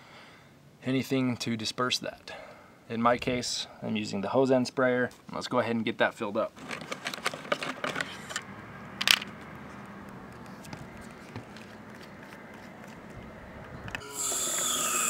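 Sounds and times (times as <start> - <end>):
plastic clicking and scraping: 6.6 - 8.4, 9.0 - 14.0
held tones falling in pitch: 14.0 - 15.0.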